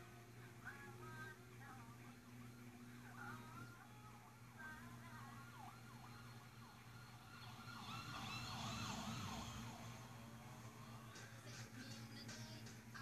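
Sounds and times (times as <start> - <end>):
steady low hum: 0.0 - 13.0
police siren yelping: 2.4 - 11.1.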